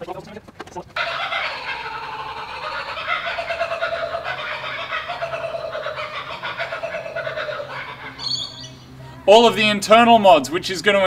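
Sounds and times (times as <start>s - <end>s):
chorus of bird calls: 1.0s - 9.2s.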